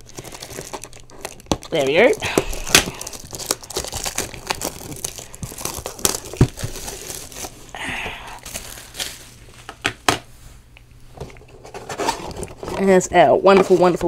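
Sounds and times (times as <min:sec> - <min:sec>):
plastic wrap crinkling: 0:00.0 - 0:10.1.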